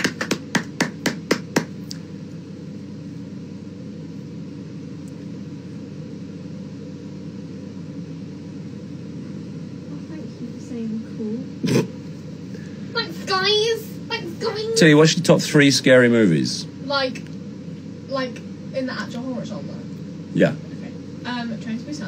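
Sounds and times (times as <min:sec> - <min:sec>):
hand clapping: 0:00.0 - 0:02.0
steady low hum: 0:00.0 - 0:22.0.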